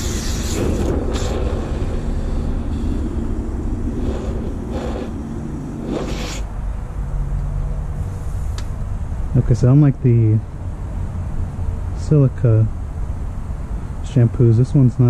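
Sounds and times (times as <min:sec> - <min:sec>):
foam gun spray hissing: 0:00.0 - 0:06.5
low rumble: 0:00.0 - 0:08.2.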